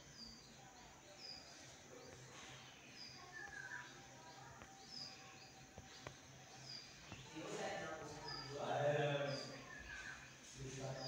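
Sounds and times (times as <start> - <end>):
small bird chirping: 0.0 - 11.0.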